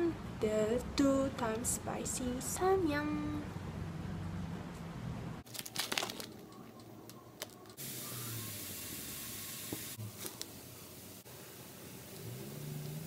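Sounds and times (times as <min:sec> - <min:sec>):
plastic packet crinkling and tearing: 0:05.4 - 0:06.8
noodles boiling in water: 0:07.8 - 0:13.0.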